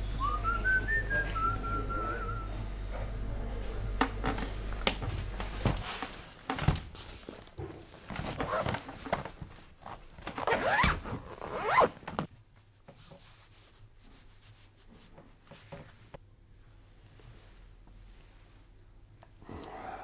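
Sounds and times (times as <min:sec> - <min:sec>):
clothing rustling: 0:04.8 - 0:16.2
zipper on fabric bag: 0:09.8 - 0:12.3.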